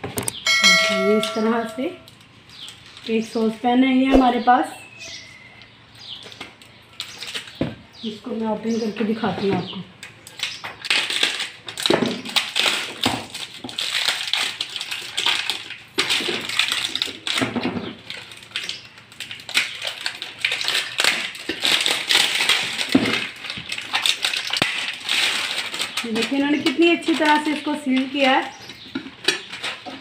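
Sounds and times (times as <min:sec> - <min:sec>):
plastic wrap crinkling and tearing: 0:06.2 - 0:07.6, 0:10.0 - 0:30.0.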